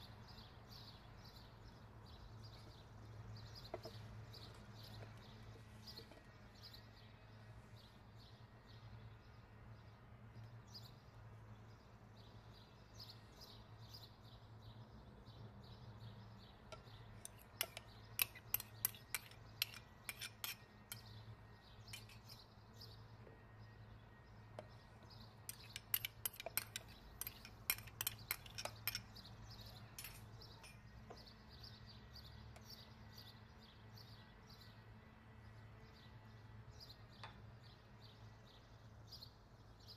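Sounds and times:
spoon clinking against glass bowl: 16.7 - 21.1, 21.9 - 22.4, 25.5 - 29.2, 29.8 - 30.9.

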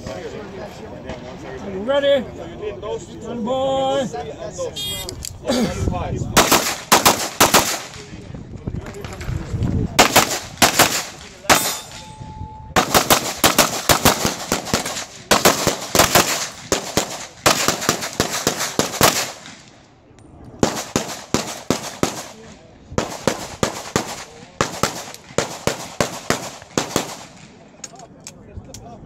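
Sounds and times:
rapid pistol shots: 6.4 - 8.1, 10.0 - 12.0, 12.8 - 19.7, 20.6 - 27.6.

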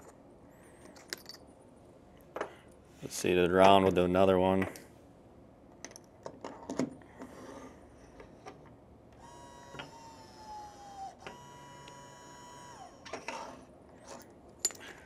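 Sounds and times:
electric motor whining: 9.2 - 13.6.

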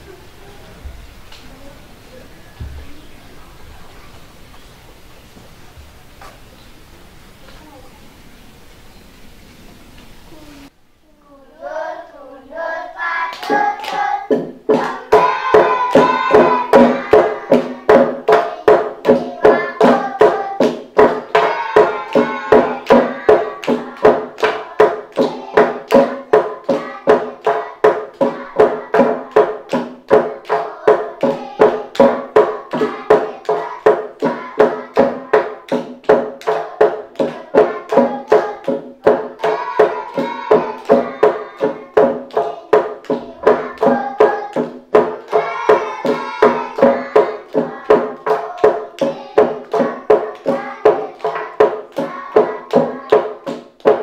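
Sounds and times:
voices singing: 11.3 - 54.0.

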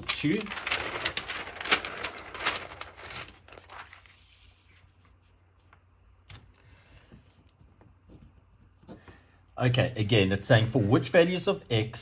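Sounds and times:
paper sheets rustling on desk: 0.0 - 9.4.

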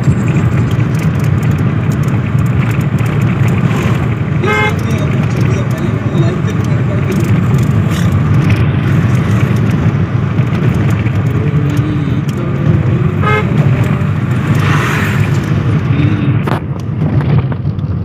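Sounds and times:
car engine and tyres rumbling: 0.0 - 18.0
car horn toot: 4.4 - 5.2, 13.0 - 14.1.

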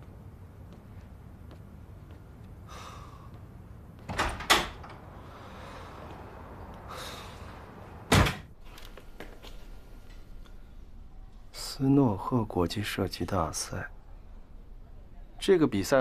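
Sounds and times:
door shutting with thud: 4.1 - 5.0, 8.1 - 8.5.

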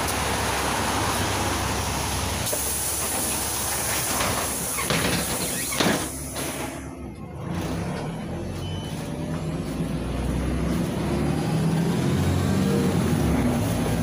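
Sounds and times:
bus engine idling: 0.0 - 14.0
compressed air hiss: 2.4 - 6.8
bus doors thudding shut: 2.4 - 6.9.

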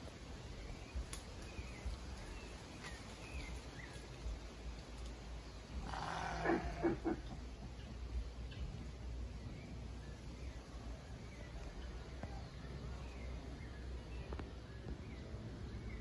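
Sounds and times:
pulsing animal call: 5.8 - 7.4.

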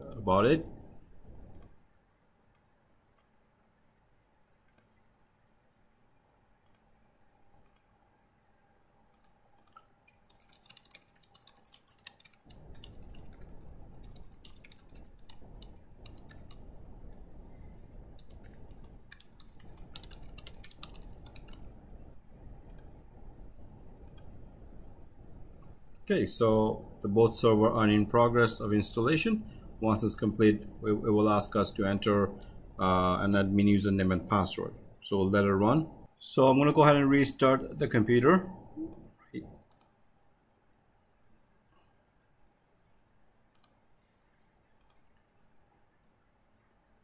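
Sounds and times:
low background hiss: 0.0 - 47.0
mouse clicks: 1.5 - 1.8, 2.5 - 3.4, 4.6 - 5.0, 6.6 - 6.9, 7.6 - 7.9, 9.1 - 17.2, 24.0 - 24.3, 43.5 - 43.8, 44.8 - 45.2
keyboard typing: 9.1 - 17.4, 18.0 - 21.8.

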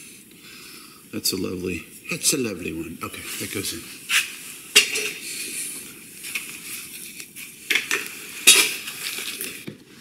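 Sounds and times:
metal tools clinking and clattering: 4.8 - 5.2, 8.4 - 8.8.

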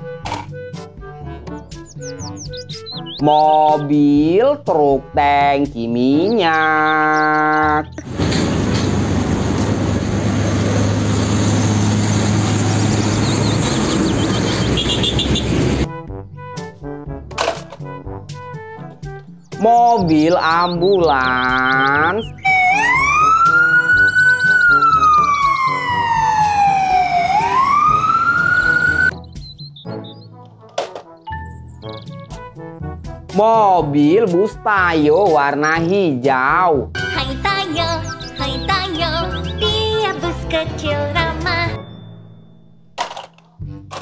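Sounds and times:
road noise: 5.9 - 16.0, 17.4 - 31.2, 36.9 - 44.0
diesel truck engine humming: 6.3 - 15.9, 20.1 - 29.2, 37.2 - 43.0
ambulance siren wailing: 20.6 - 29.2.

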